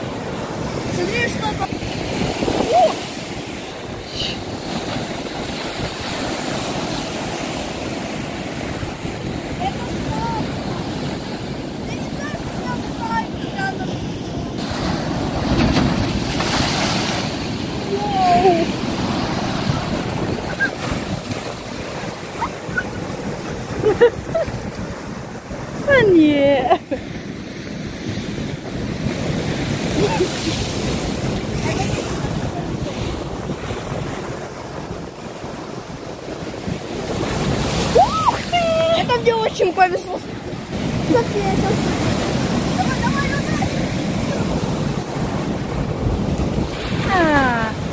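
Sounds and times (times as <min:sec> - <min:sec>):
surf breaking on rocks: 0:00.0 - 0:26.3, 0:28.4 - 0:47.9
wind buffeting microphone: 0:00.0 - 0:47.9.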